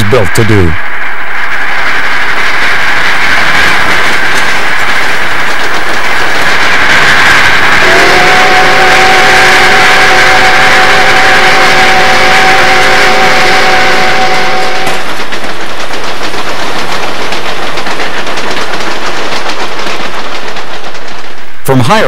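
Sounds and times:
steam locomotive exhaust: 0.0s - 21.7s
steam whistle chord: 7.5s - 15.1s.

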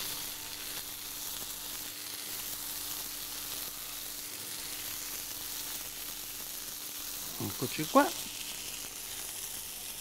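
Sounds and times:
meat sizzling in frying pan: 0.0s - 10.0s.

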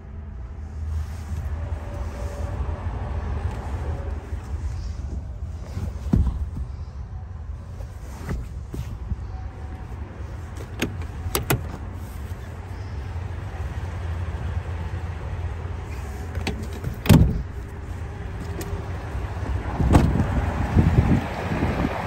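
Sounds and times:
car door thumps: 5.9s - 6.8s, 10.6s - 11.8s, 16.4s - 17.7s, 19.8s - 20.3s.

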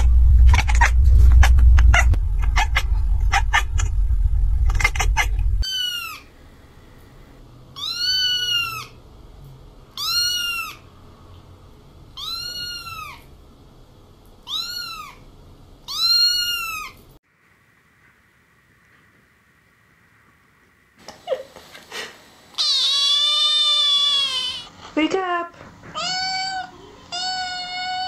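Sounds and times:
kitten meowing: 7.8s - 9.0s, 10.0s - 10.8s, 12.2s - 13.2s, 14.5s - 15.2s, 15.9s - 17.0s, 22.6s - 24.6s, 26.0s - 28.0s.

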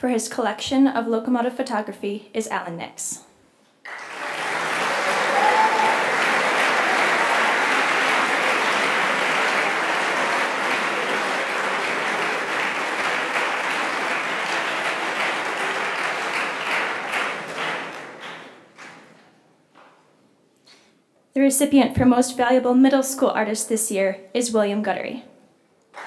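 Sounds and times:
audience applauding: 3.8s - 19.1s.

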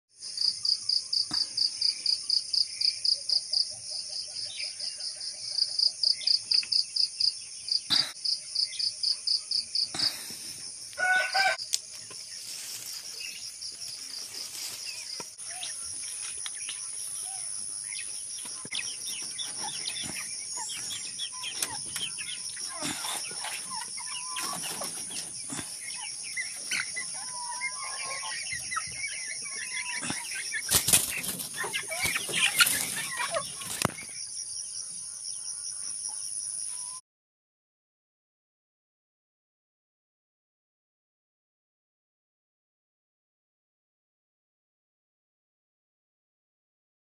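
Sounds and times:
insects chirring: 5.8s - 36.9s
chickens clucking: 9.1s - 34.1s
loud chicken call: 11.0s - 11.6s.

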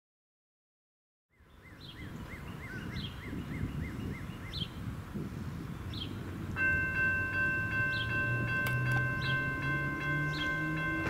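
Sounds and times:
bird chirping: 1.3s - 6.4s, 7.6s - 11.0s
crossing warning bell ringing: 6.6s - 11.0s.

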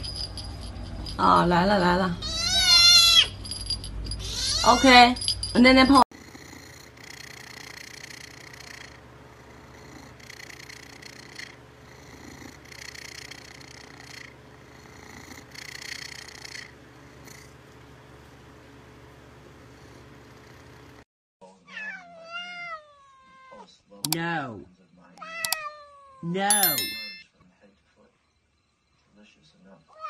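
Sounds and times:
cat meowing: 2.2s - 3.3s, 4.2s - 4.9s, 21.7s - 23.7s, 25.2s - 26.3s
cat purring: 6.1s - 17.6s, 19.4s - 21.0s.

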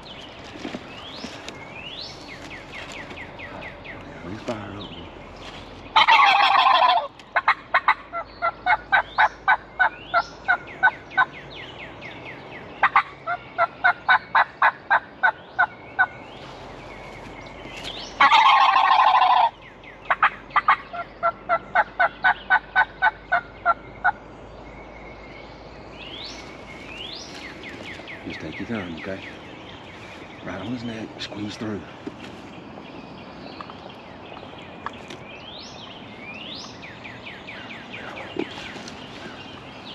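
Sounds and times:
songbirds: 0.0s - 39.9s
rapid turkey yelping: 5.9s - 11.3s, 12.8s - 16.1s, 18.2s - 24.2s
turkey gobbling: 5.9s - 11.3s, 12.8s - 16.1s, 18.2s - 24.2s.

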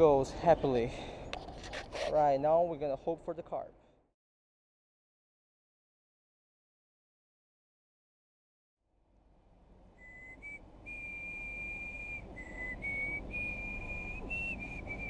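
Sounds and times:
faint outdoor background noise: 0.0s - 4.1s, 8.9s - 15.0s
person whistling a slow tune: 10.0s - 15.0s.

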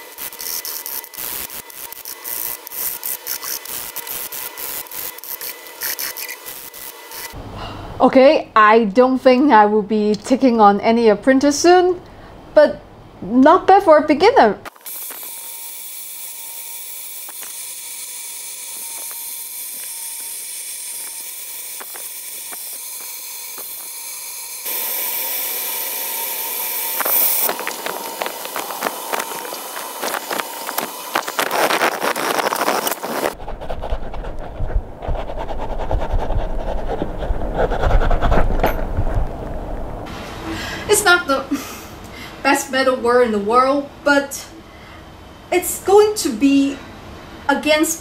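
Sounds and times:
torch flame hissing: 24.6s - 33.6s
crackling during brazing: 26.8s - 35.4s
rubbing and scraping on bench: 31.5s - 39.1s.

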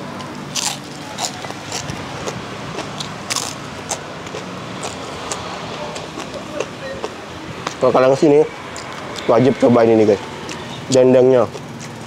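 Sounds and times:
road traffic hum: 0.0s - 12.0s
crunching crispy food: 0.2s - 5.5s.

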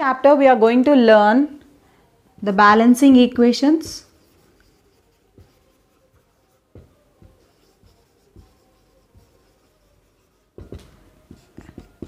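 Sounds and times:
marker pen writing on whiteboard: 3.0s - 12.0s.

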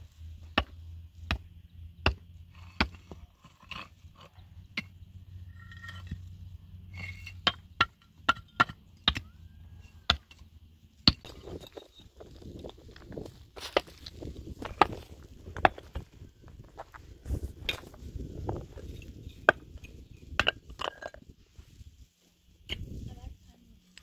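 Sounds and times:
hand tool striking wood or stone: 6.9s - 9.3s, 10.0s - 10.4s.

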